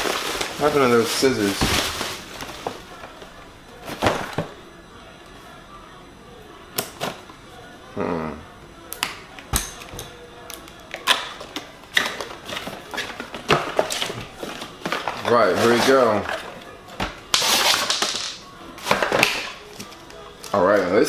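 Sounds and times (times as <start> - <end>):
plastic packaging handled: 0.0 - 4.5.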